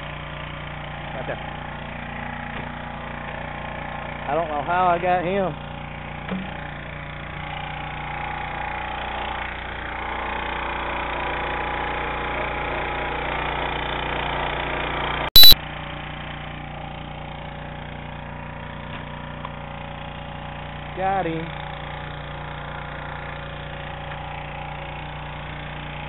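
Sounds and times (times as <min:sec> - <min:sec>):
digital pop: 0:15.4 - 0:15.6.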